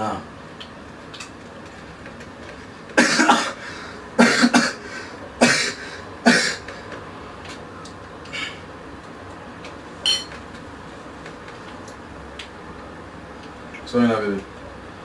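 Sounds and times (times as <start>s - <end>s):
person coughing: 3.0s - 3.6s, 4.2s - 4.8s, 5.4s - 6.6s.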